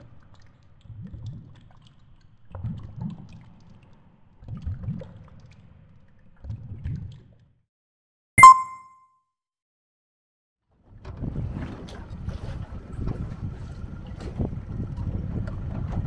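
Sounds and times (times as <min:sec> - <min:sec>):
sharp ding with ringing tone: 0:08.4 - 0:09.0.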